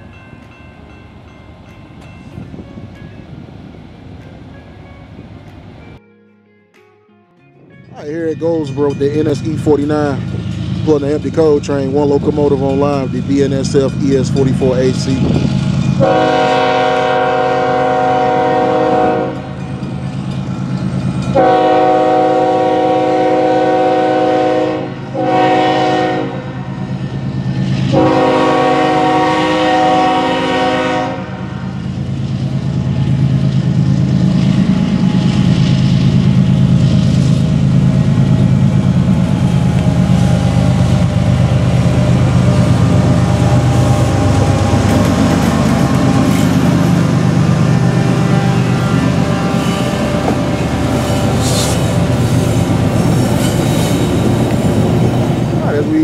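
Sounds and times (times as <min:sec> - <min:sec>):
diesel locomotive engine rumbling: 0:00.0 - 0:06.0, 0:07.6 - 0:56.0
locomotive air horn blasts: 0:16.0 - 0:19.6, 0:21.4 - 0:26.6, 0:27.9 - 0:31.7, 0:42.8 - 0:53.2.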